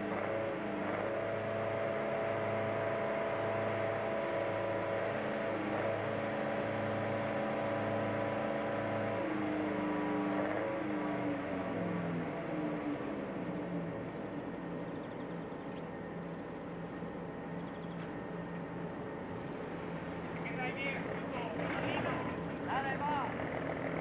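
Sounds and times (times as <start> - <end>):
diesel locomotive engine running: 17.7 - 24.0.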